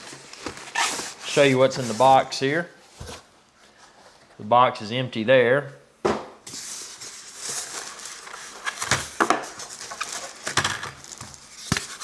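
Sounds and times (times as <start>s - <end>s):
plastic wrap crinkling: 0.0s - 2.2s, 6.6s - 12.0s
foam packing rubbing: 0.0s - 2.3s.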